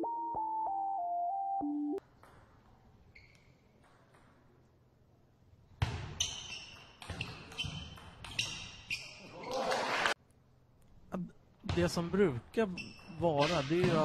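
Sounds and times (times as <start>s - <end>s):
electronic keyboard tune: 0.0s - 2.0s.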